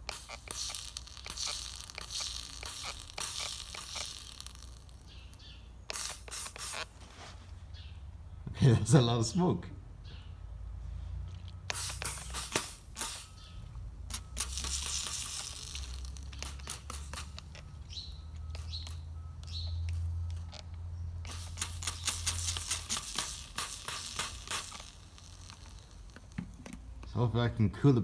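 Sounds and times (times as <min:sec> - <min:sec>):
hissing: 0:00.0 - 0:06.9, 0:11.7 - 0:27.2
oil sizzling on hot metal: 0:00.0 - 0:07.0, 0:11.7 - 0:20.6, 0:21.2 - 0:27.0
trigger sprayer squirting: 0:00.0 - 0:07.0, 0:11.4 - 0:27.2.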